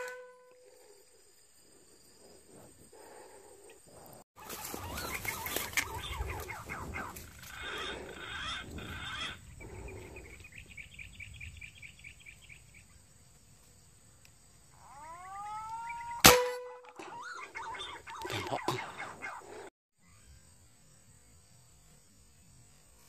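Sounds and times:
air rifle shot: 16.2s - 16.7s.

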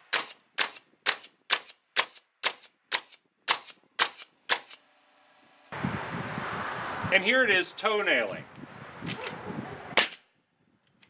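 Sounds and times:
nail gun firing: 0.0s - 4.8s, 10.0s - 10.2s.

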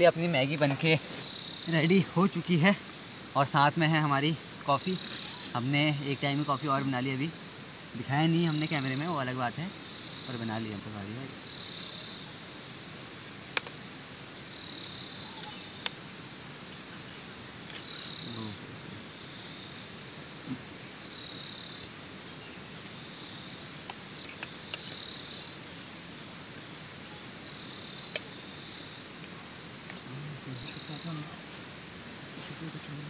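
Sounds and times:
shrill insect chorus: 0.0s - 33.0s.

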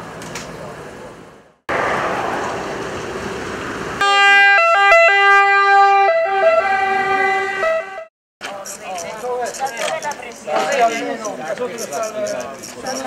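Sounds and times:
outdoor noise: 0.0s - 13.0s
two-tone siren: 4.0s - 8.1s.

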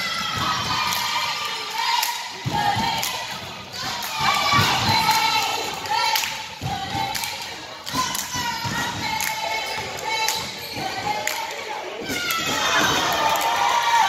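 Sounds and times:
spectators' voices: 0.0s - 14.0s
sneakers squeaking: 8.0s - 13.3s.

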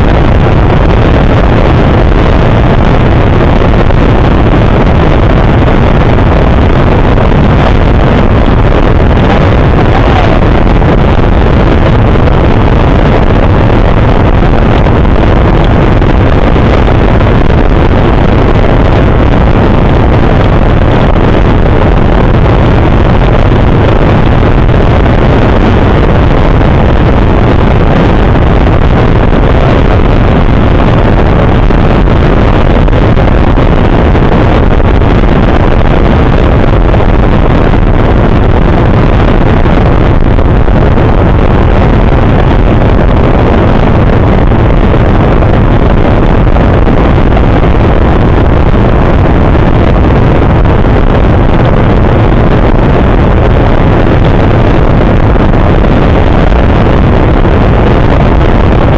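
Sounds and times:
wind buffeting microphone: 0.0s - 58.9s
outboard motor roaring: 6.0s - 14.4s
water rushing: 7.3s - 12.8s.

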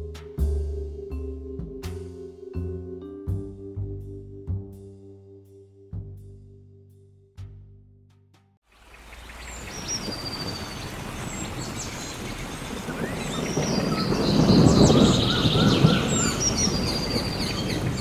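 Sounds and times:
birds chirping and trilling: 8.7s - 18.0s
waterfall rushing: 8.8s - 14.4s.

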